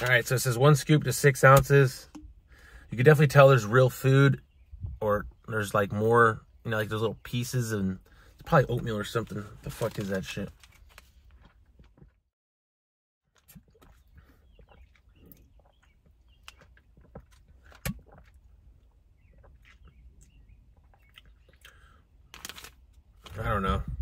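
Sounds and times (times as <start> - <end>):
plastic bottle handling: 8.4 - 12.0
foil pouch crinkling: 9.0 - 11.5, 22.2 - 23.4.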